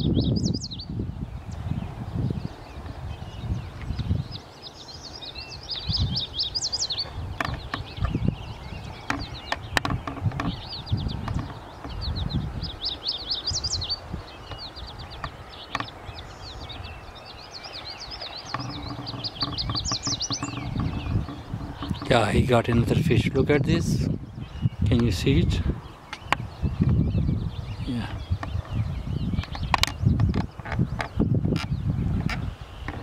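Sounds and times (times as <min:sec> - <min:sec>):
songbirds chirping: 0:00.0 - 0:33.0
low rumbles: 0:18.3 - 0:33.0.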